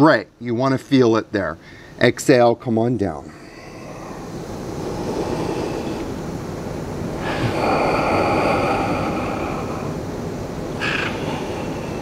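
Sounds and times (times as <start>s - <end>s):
steady background hiss: 0.0s - 12.0s
man breathing: 1.6s - 2.0s, 3.2s - 12.0s.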